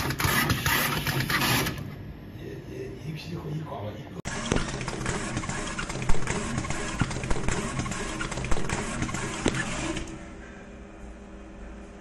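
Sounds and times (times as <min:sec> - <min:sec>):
machine humming: 0:04.1 - 0:12.0.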